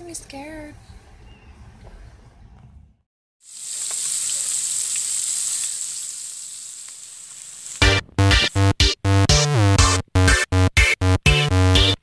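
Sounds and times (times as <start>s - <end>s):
food sizzling in hot oil: 3.4s - 7.8s
electronic music with heavy bass: 7.8s - 12.0s.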